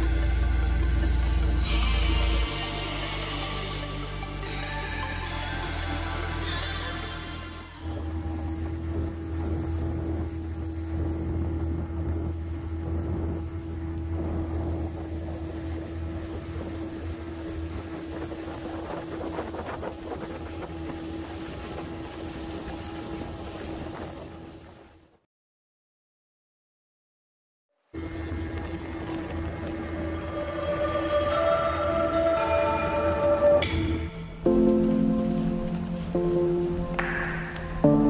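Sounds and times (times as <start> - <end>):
motorboat engine droning: 0.0 - 25.1, 28.0 - 38.0
water rushing past boat: 7.8 - 25.2, 28.0 - 38.0
wind rushing: 8.9 - 24.9.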